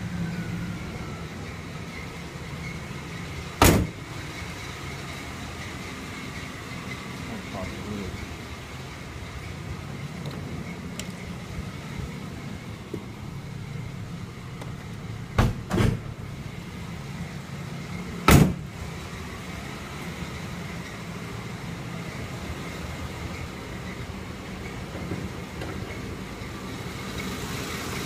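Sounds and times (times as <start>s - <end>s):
car engine idling: 0.0s - 28.0s
car door clunking: 3.6s - 4.0s, 14.6s - 16.2s, 18.2s - 18.7s.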